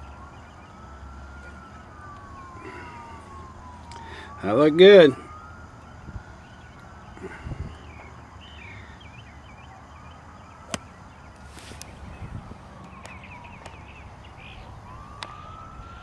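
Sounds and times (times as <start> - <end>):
birds chirping: 0.0 - 16.0
distant siren wailing: 0.0 - 16.0
golf club striking ball: 10.7 - 10.9.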